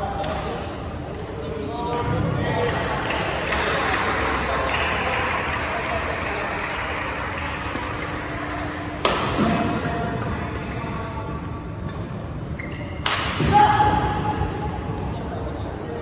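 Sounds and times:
shoe squeaks on court: 12.5s - 13.0s.

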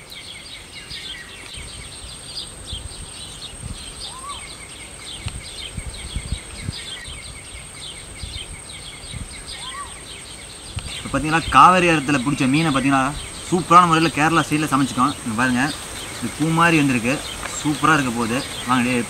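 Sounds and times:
bird call: 0.0s - 19.0s
high insect whine: 0.0s - 19.0s
wind rumbling on microphone: 0.0s - 19.0s
rapid high chirping: 9.0s - 19.0s.

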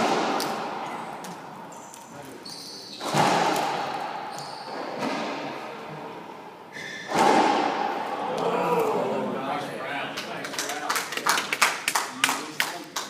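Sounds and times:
racquetball smacks echoing: 0.0s - 1.5s, 3.0s - 5.7s, 6.7s - 8.5s
sneakers squeaking on hardwood: 1.7s - 3.7s, 4.3s - 5.4s, 6.7s - 7.2s.

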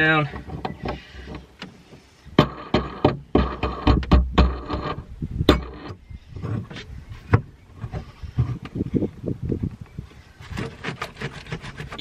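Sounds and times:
metal scraping and rubbing: 0.0s - 7.0s, 10.4s - 12.0s
sharp clicks and knocks: 0.2s - 8.8s.

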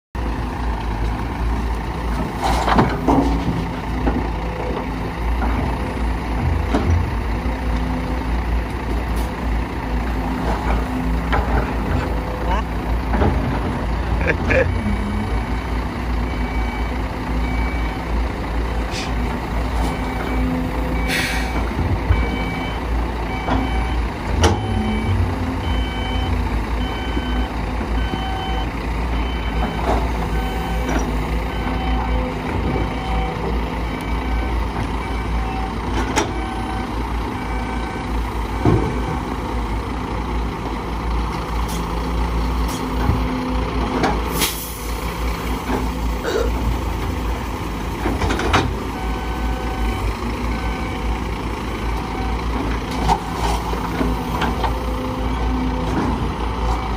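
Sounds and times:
diesel engines running: 0.2s - 56.9s
vehicle backup alarm beeping: 14.2s - 39.5s, 48.1s - 56.9s.

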